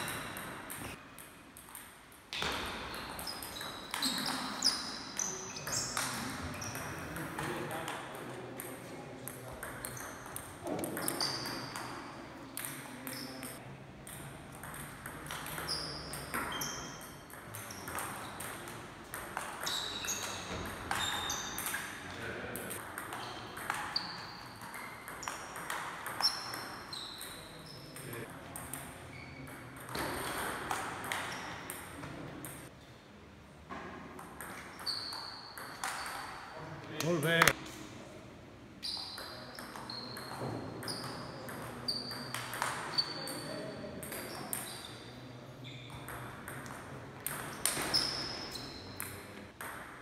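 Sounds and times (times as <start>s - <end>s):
ping pong ball hitting rackets: 0.0s - 4.6s, 5.2s - 21.9s, 22.5s - 32.7s, 34.2s - 36.4s, 39.2s - 44.8s, 46.0s - 48.4s, 49.0s - 50.0s
shoes squeaking on floor: 2.8s - 7.1s, 9.9s - 12.2s, 19.6s - 22.1s, 23.2s - 25.5s, 26.2s - 28.1s, 29.1s - 30.4s, 34.6s - 36.3s, 38.8s - 42.3s, 42.9s - 43.4s, 47.7s - 49.2s.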